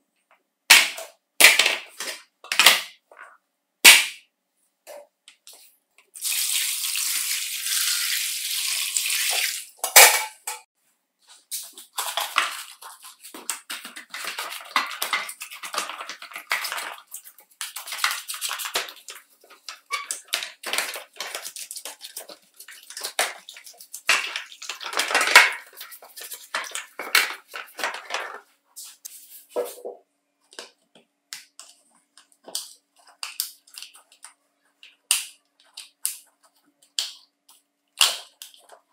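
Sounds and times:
water pouring into plastic tub: 6.2 - 9.8
brush scrubbing plastic: 11.4 - 27.8.

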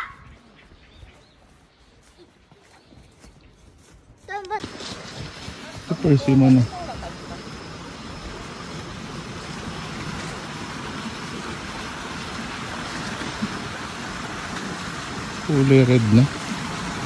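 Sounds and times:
open air rushing noise: 4.5 - 17.0.

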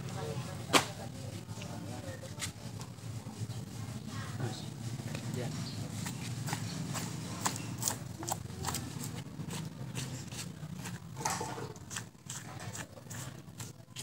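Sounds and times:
knife cutting meat: 6.9 - 14.0.

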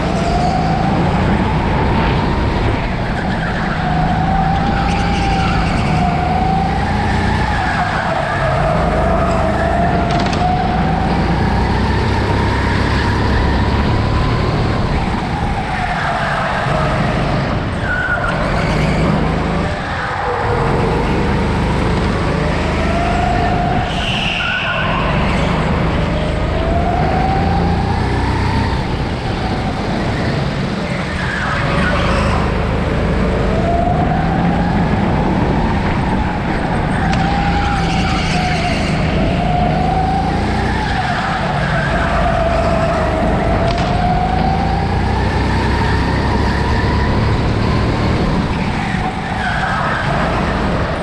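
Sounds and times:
go-kart engine whining: 0.0 - 51.0.

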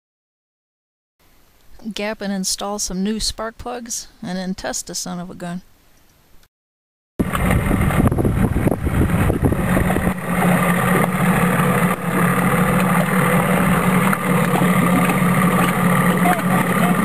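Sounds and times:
outboard motor idling: 7.2 - 17.0.

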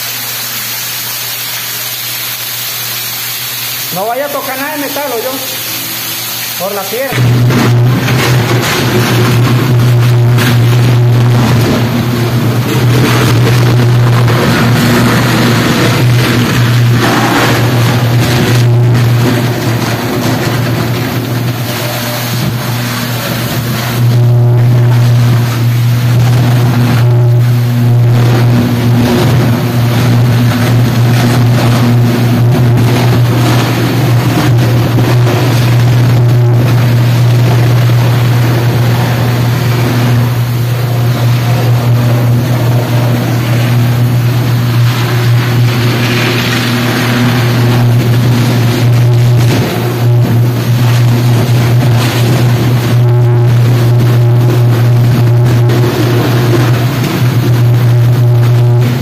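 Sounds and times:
electrical arc buzzing and crackling: 0.0 - 59.0.

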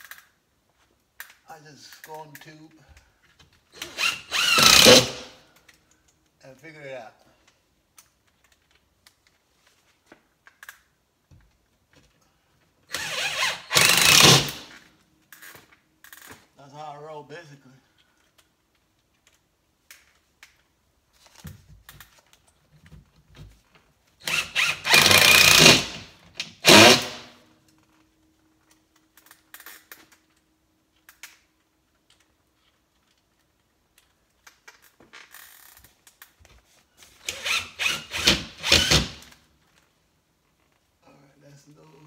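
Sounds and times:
cordless drill driving screws: 3.8 - 5.4, 12.9 - 14.8, 24.2 - 27.3, 37.2 - 39.4.

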